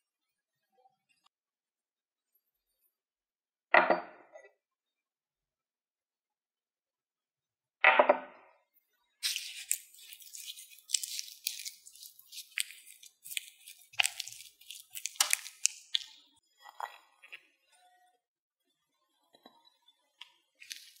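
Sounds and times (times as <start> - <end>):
dry sheet crinkling and tearing: 9.2 - 16.2, 20.6 - 21.0.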